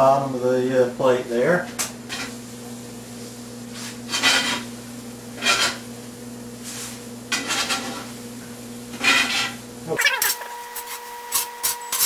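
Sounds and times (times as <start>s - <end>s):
spatula scraping cast iron pan: 5.4s - 5.8s, 7.3s - 8.1s.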